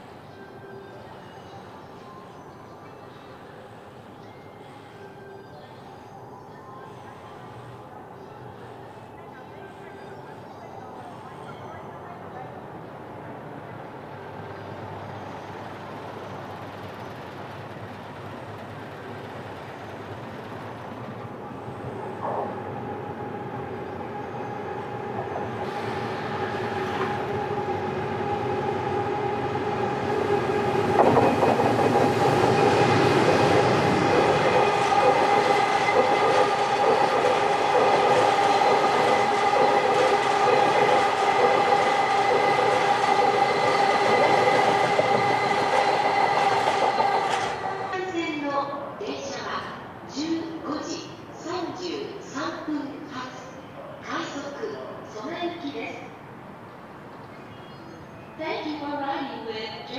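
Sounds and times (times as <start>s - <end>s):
electric train whine: 0.0s - 48.4s
train wheel clatter: 30.2s - 47.9s.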